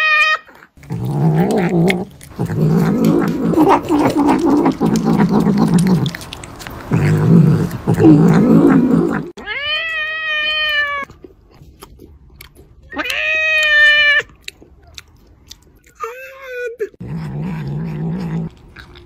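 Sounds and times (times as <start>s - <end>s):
cat meowing: 0.0s - 0.7s, 9.4s - 11.1s, 12.9s - 14.3s
cat growling: 0.0s - 9.8s, 17.0s - 19.0s.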